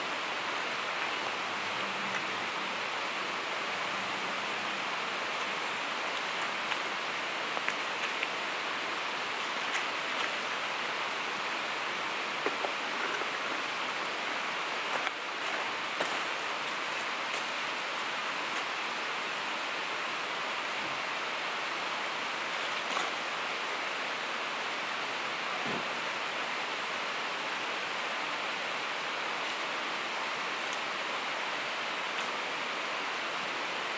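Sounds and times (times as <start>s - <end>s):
river water rushing: 0.0s - 33.9s.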